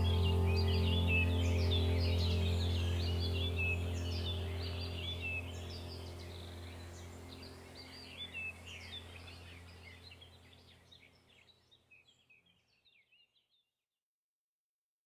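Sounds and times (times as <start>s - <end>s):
low steady hum: 0.0s - 12.3s
songbirds chirping: 0.0s - 13.6s.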